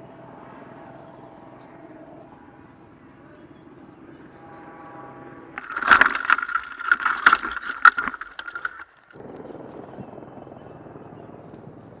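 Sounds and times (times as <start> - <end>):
helicopter rushing hum: 0.0 - 12.0
knocks and crashes of impact: 5.6 - 9.2.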